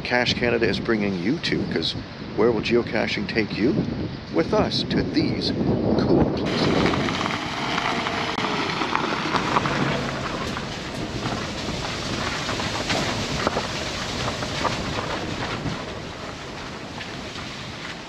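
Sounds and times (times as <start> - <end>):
wind buffeting microphone: 0.0 - 18.0
footsteps on muddy track: 6.5 - 18.0.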